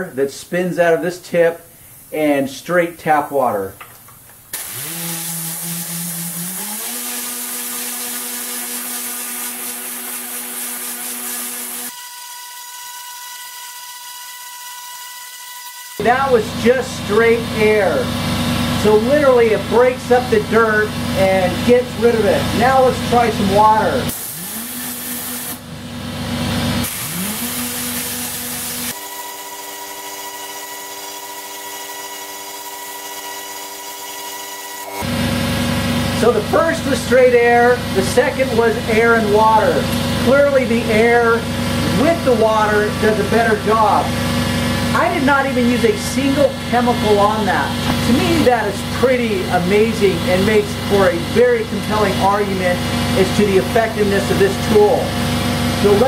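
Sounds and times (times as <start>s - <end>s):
air cleaning gun hissing: 4.5s - 11.9s, 24.1s - 25.7s, 26.8s - 29.0s.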